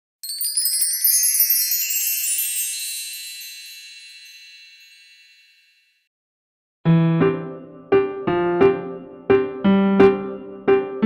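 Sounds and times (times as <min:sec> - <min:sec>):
high bright chime tones ringing: 0:00.2 - 0:06.1.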